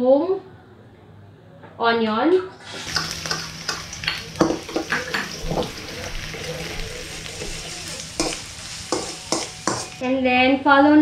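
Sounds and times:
onion sizzling in hot oil: 0:02.6 - 0:10.0
metal spoon scraping a pan: 0:02.7 - 0:10.0.

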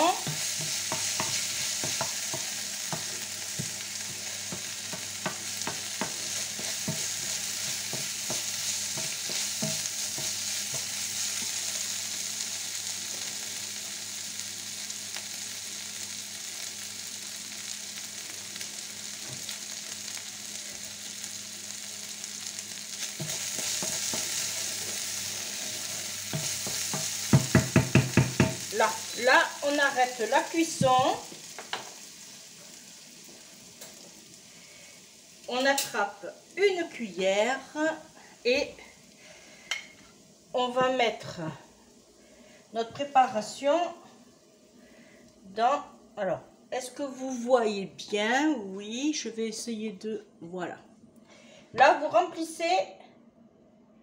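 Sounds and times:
wooden spoon scraping a pan: 0:00.0 - 0:11.6, 0:23.0 - 0:28.9
food sizzling in a frying pan: 0:00.0 - 0:49.8.

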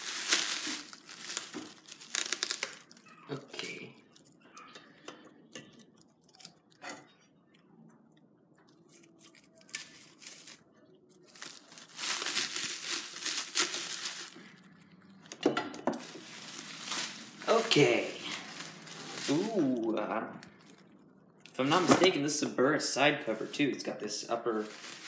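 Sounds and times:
plastic wrap being snipped: 0:00.0 - 0:03.8, 0:08.9 - 0:10.6, 0:11.3 - 0:14.6, 0:16.0 - 0:20.8
plastic wrap tearing: 0:00.0 - 0:04.5, 0:08.7 - 0:15.3, 0:16.0 - 0:22.4, 0:24.5 - 0:25.0
plastic wrap crinkling: 0:00.0 - 0:07.2, 0:08.6 - 0:22.4, 0:23.3 - 0:25.0.

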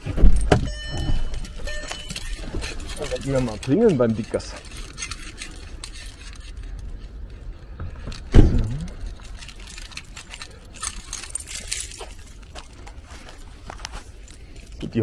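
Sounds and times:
keys jangling: 0:00.0 - 0:15.0
heavy thump: 0:07.8 - 0:08.9.

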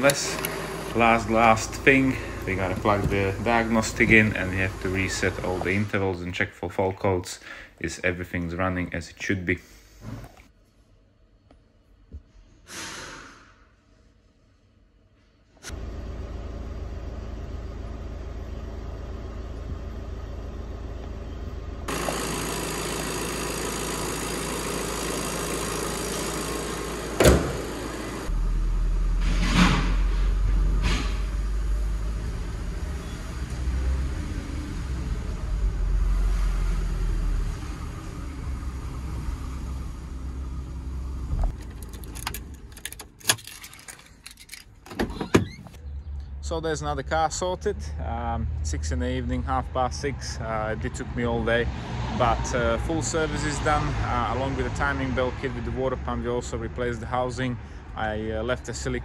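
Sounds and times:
engine knocks: 0:00.0 - 0:05.8
diesel engine humming: 0:00.0 - 0:06.2, 0:15.7 - 0:29.3, 0:30.8 - 0:51.6.

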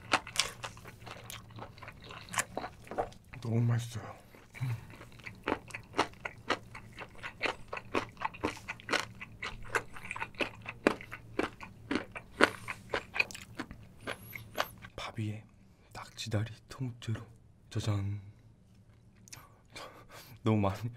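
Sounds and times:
wet chewing crunches: 0:00.0 - 0:03.5, 0:04.3 - 0:14.9.

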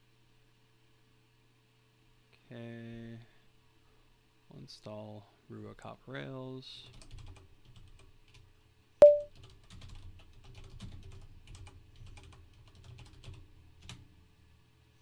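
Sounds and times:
keyboard typing: 0:09.0 - 0:14.0.

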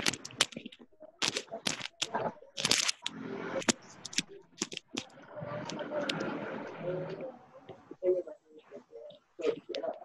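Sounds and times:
sharp clicks and crackles: 0:00.0 - 0:06.3
faint voices: 0:00.0 - 0:10.0.

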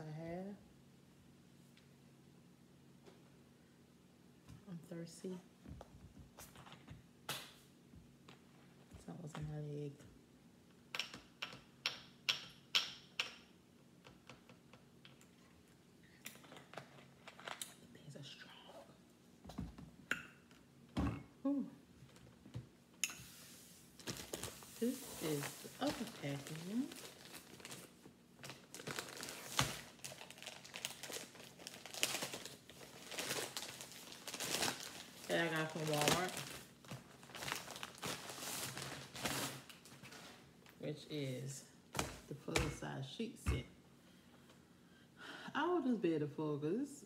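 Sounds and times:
plastic bag crinkling: 0:23.9 - 0:40.8.

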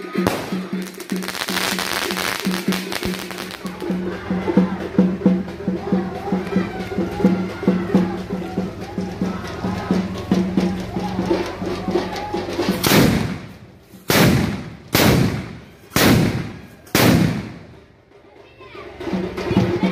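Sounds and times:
firecracker bangs: 0:00.0 - 0:03.9, 0:12.8 - 0:17.8
music with steady beat: 0:00.0 - 0:18.3.

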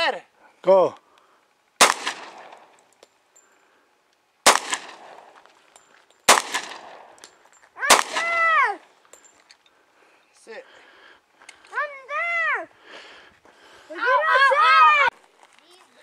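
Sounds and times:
gunshots with echo: 0:01.8 - 0:02.7, 0:04.5 - 0:05.3, 0:06.3 - 0:07.2, 0:07.9 - 0:08.5.

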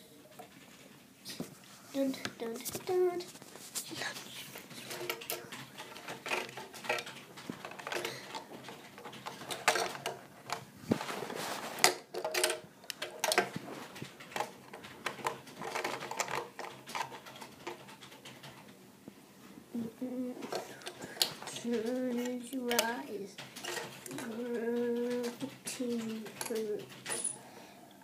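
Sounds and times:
plastic toy parts clattering: 0:04.0 - 0:18.7, 0:20.3 - 0:27.4.

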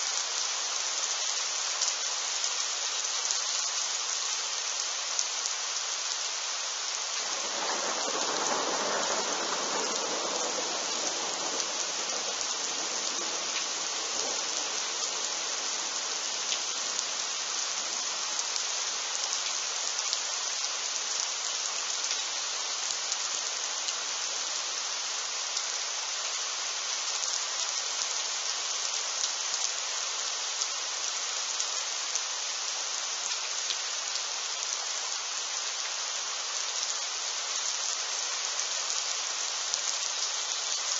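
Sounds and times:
heavy rain hissing: 0:00.0 - 0:40.9.

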